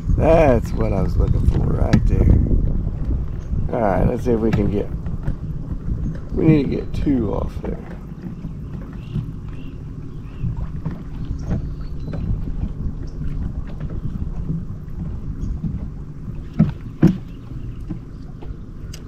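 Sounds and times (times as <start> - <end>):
boat engine rumble: 0.0 - 19.0
wind on microphone: 0.0 - 19.0.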